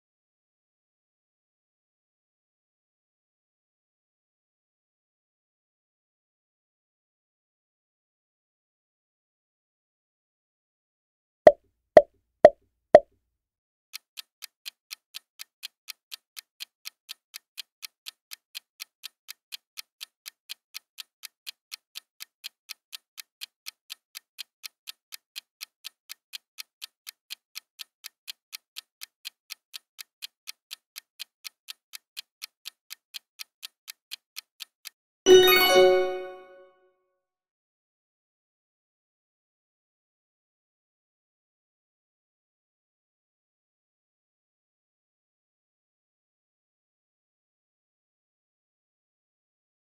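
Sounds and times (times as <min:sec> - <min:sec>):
clock ticking: 0:14.0 - 0:36.4
bright chime: 0:35.3 - 0:36.7.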